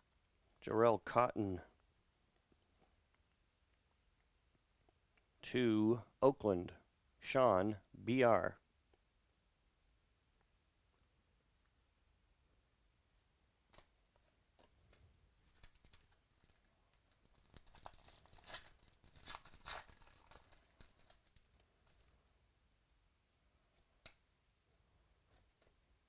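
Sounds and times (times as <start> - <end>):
foil wrapper crinkling: 15.4 - 22.1.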